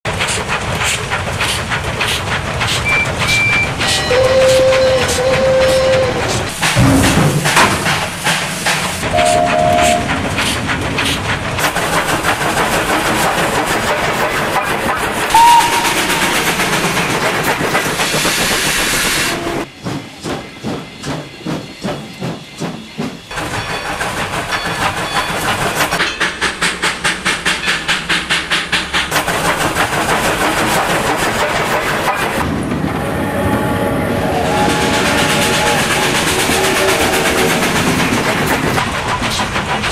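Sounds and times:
steam locomotive chuffing: 0.1 - 39.9
train whistle toot: 3.8 - 6.4, 9.1 - 10.2, 15.3 - 16.5.

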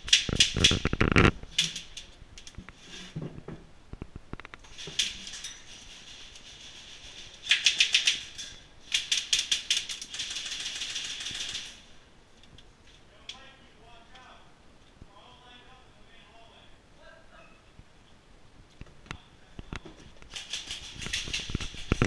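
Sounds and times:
airsoft rifles firing bursts: 8.9 - 11.8.

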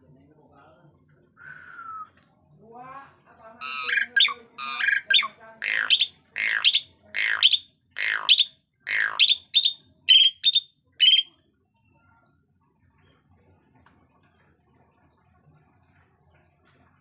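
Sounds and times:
starling squawks and whistles: 3.6 - 11.3.

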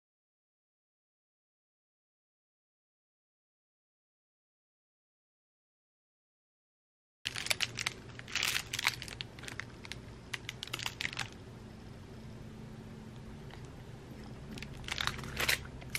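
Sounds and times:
tinsel toy rustling: 7.3 - 11.4.

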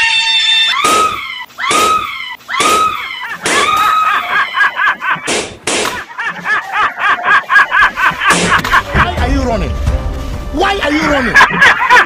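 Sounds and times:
fast high repeated cry: 0.0 - 4.7
high scream: 0.0 - 4.7.

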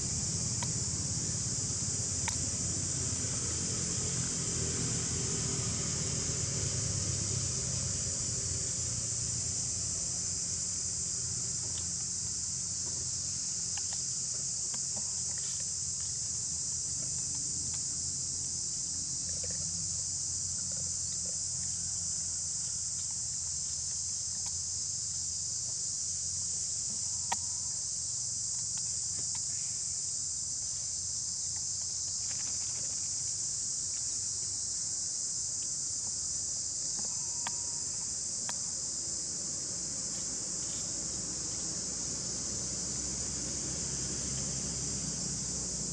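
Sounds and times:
insect chorus drone: 0.0 - 45.9
faint ticks: 13.7 - 16.1, 26.8 - 27.6, 36.9 - 38.6.

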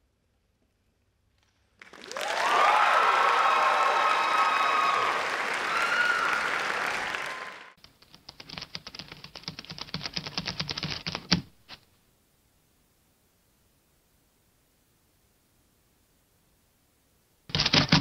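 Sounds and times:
audience applauding and cheering: 1.8 - 7.8
rapid clicks: 7.8 - 11.4.

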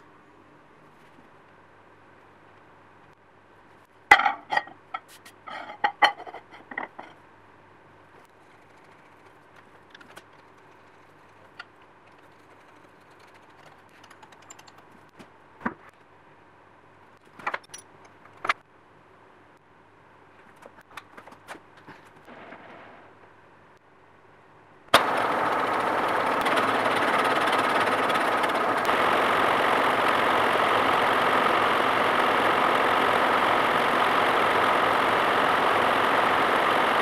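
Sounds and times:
small clicks and sharp knocks: 9.2 - 15.8.

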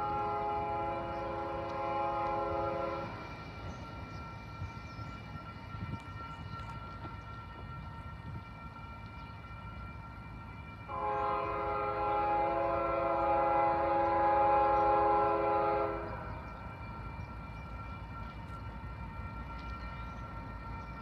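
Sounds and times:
locomotive air horn chord: 0.0 - 3.4, 10.9 - 16.4
low train rumble: 0.0 - 21.0.

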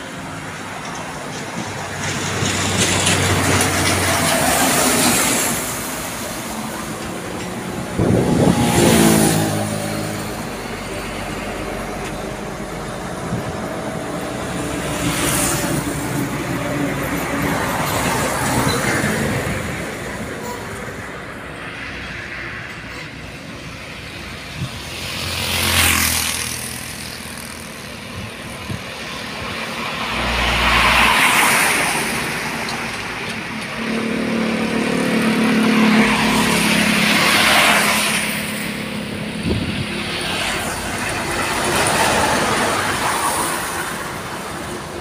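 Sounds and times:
vehicles passing on wet road: 0.0 - 45.0.

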